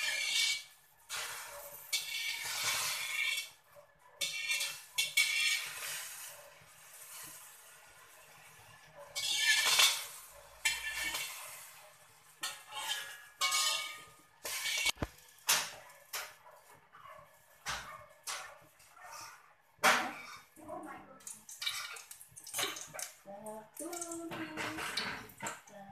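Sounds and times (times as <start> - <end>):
metal spatula scraping wok: 0.0 - 20.6.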